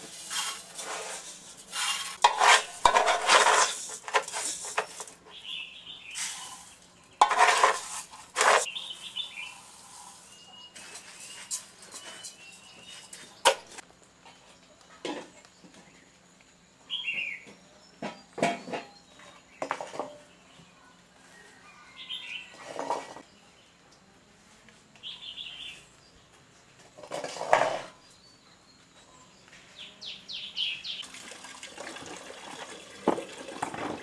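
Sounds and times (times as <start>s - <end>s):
pots and utensils clattering: 0.0s - 5.2s, 6.2s - 8.7s, 18.0s - 20.2s, 22.6s - 23.2s, 27.0s - 28.0s, 31.1s - 34.0s
small bird chirping: 8.6s - 13.5s.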